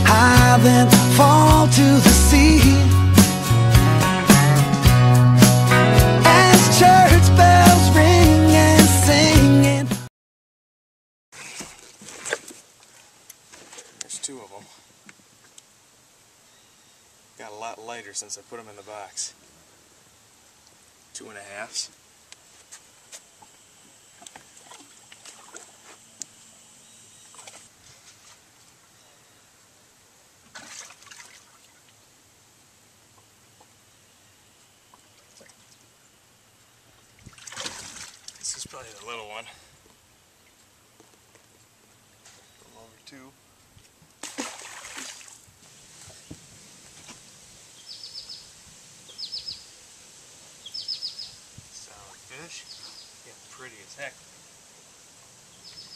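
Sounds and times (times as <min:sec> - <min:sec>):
faint outdoor hiss: 0:00.0 - 0:09.8, 0:11.4 - 0:55.9
fish splashing: 0:11.4 - 0:14.0, 0:24.2 - 0:26.1, 0:30.5 - 0:31.8, 0:37.2 - 0:38.5, 0:44.2 - 0:46.3
songbird chirping: 0:14.0 - 0:19.5, 0:20.6 - 0:29.8, 0:33.0 - 0:37.2, 0:38.2 - 0:43.9, 0:46.1 - 0:55.9
water sloshing in a tank: 0:24.2 - 0:26.1, 0:30.5 - 0:31.9, 0:37.1 - 0:38.7, 0:44.2 - 0:46.2.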